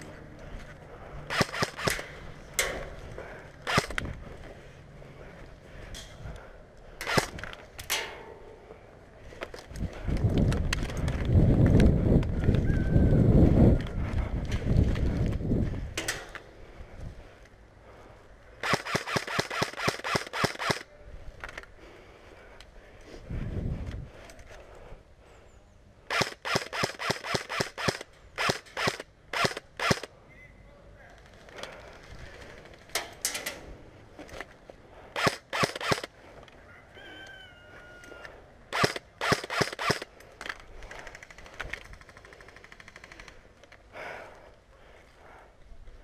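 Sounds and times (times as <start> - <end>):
airsoft guns firing bursts: 1.3 - 2.1, 18.6 - 20.9, 26.1 - 30.1, 35.1 - 36.1, 38.7 - 40.1.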